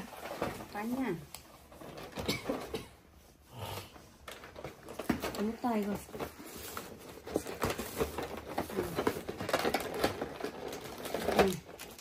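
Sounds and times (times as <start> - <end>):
snack wrapper rustling and crinkling: 4.2 - 12.0.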